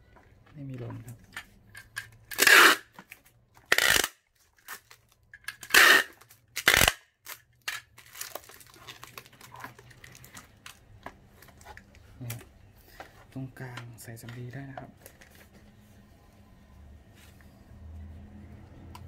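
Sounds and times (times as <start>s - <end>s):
crinkling and rustling: 0.0s - 3.7s, 4.3s - 6.6s, 7.2s - 16.1s
tape ripping off roll: 2.3s - 3.0s, 5.6s - 8.6s.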